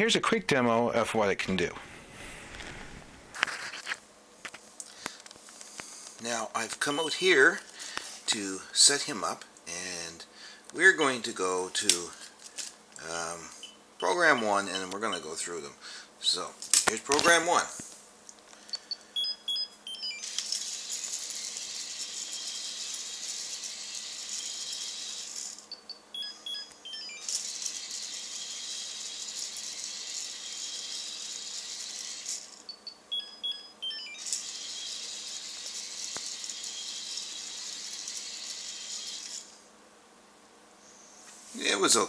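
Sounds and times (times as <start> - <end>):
toy robot electronic beeps: 13.6 - 15.3, 18.8 - 39.4
toy motor rattling whir: 14.0 - 15.3, 20.0 - 32.8, 33.8 - 39.7.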